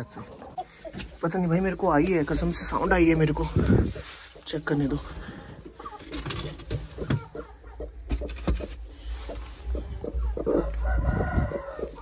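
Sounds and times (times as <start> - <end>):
hen clucking: 0.0 - 12.0.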